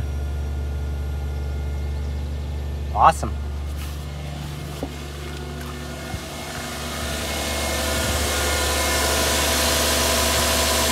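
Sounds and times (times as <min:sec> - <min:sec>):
car engine idling: 0:00.0 - 0:10.9.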